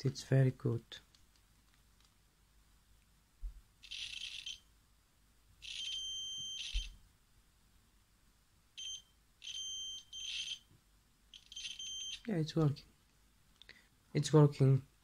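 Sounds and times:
multimeter buzzer beeping: 0:05.7 - 0:06.9, 0:11.4 - 0:12.3.

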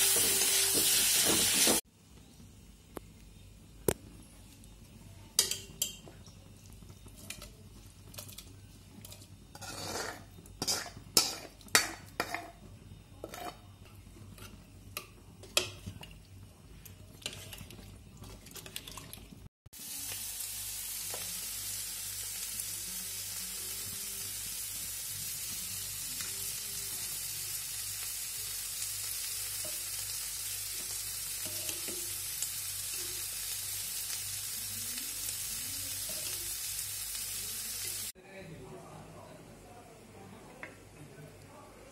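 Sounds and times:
food sizzling: 0:00.0 - 0:01.9, 0:05.3 - 0:12.6, 0:17.0 - 0:38.2.

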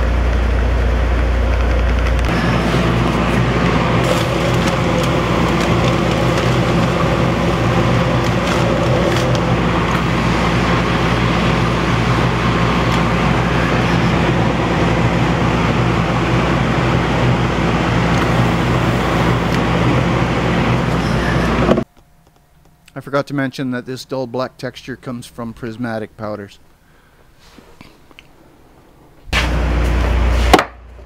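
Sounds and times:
exhaust fan humming: 0:00.0 - 0:31.0
compressed air blowing: 0:02.2 - 0:21.8.

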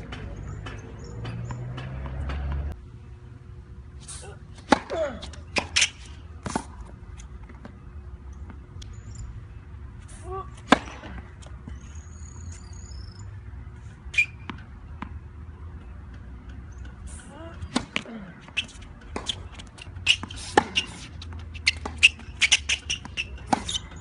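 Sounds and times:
tennis balls bouncing and struck: 0:00.0 - 0:02.8, 0:04.6 - 0:08.9, 0:10.6 - 0:11.8, 0:14.2 - 0:24.0.

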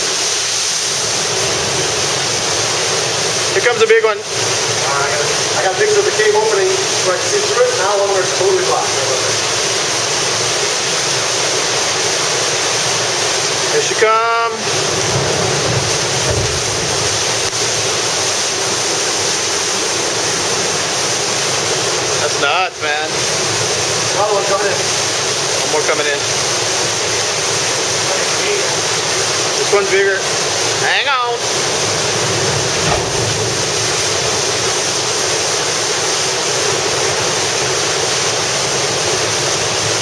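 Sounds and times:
seawater pouring off rocks: 0:00.0 - 0:40.0
water rushing through sea cave: 0:00.0 - 0:40.0
low rumble: 0:14.6 - 0:18.1, 0:32.4 - 0:34.8.

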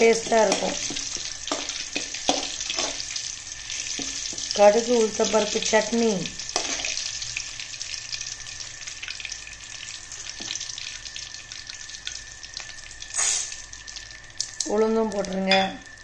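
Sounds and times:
food sizzling in oil: 0:00.0 - 0:16.0
rush of sizzling: 0:12.2 - 0:14.7.

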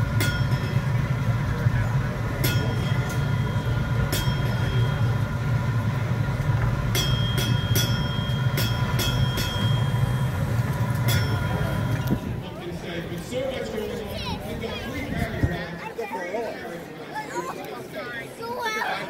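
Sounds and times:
gas furnace roaring: 0:00.0 - 0:15.7
sharp metallic clinks: 0:02.4 - 0:05.2.

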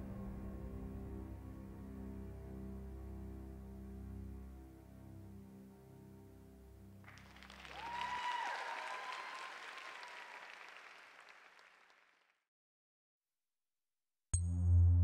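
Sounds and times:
audience applauding: 0:07.0 - 0:12.4
cheers: 0:07.1 - 0:12.2.

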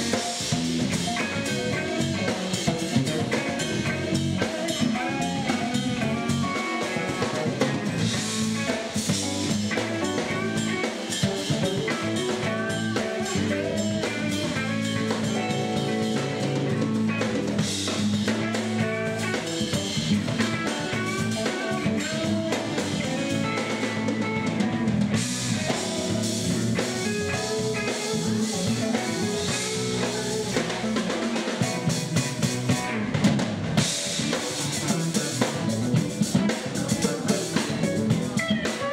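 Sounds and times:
live band playing: 0:00.0 - 0:38.9.

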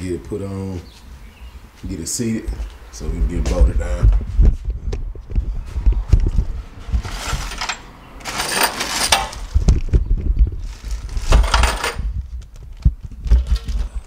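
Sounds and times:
rustling or scraping: 0:03.5 - 0:14.0.

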